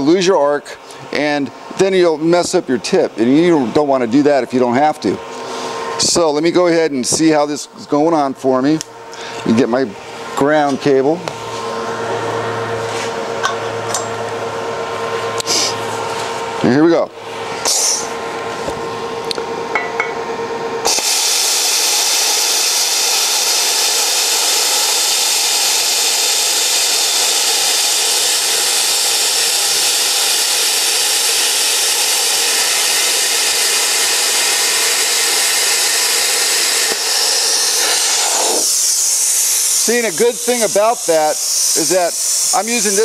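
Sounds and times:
steady hum: 0.0 - 43.0
plasma cutter arc hissing: 17.6 - 18.1, 20.8 - 43.0.

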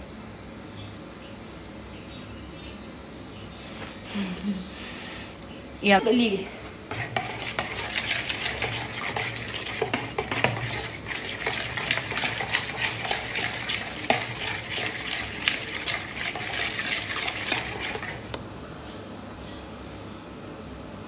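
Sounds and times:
spoon stirring in a bowl: 6.3 - 18.4.

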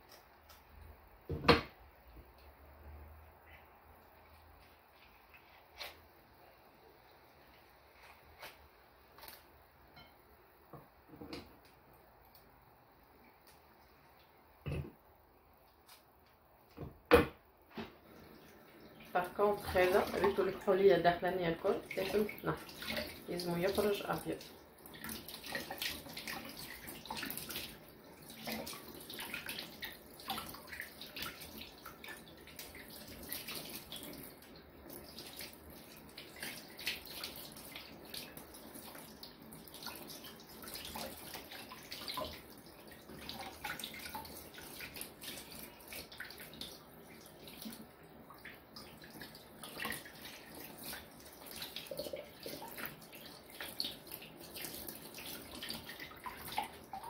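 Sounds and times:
water splashes: 18.1 - 57.0
tap water running into sink: 19.0 - 57.0.

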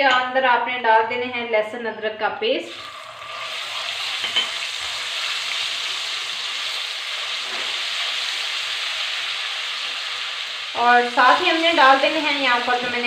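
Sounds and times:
paste sizzling in hot oil: 2.7 - 12.9.

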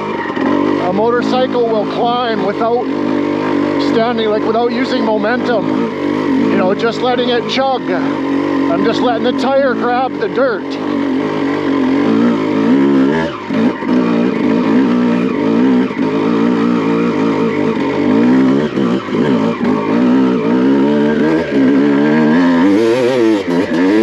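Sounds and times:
dirt bike engine chugging: 0.0 - 24.0.

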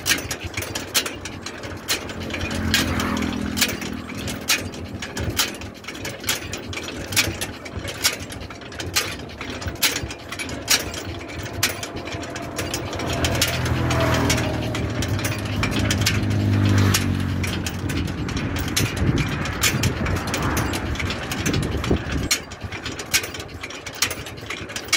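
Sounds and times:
vehicle engine passing: 0.0 - 8.4, 9.1 - 22.3
cart rolling on paved road: 0.0 - 24.9
chain rattling and clicking: 0.0 - 24.9.

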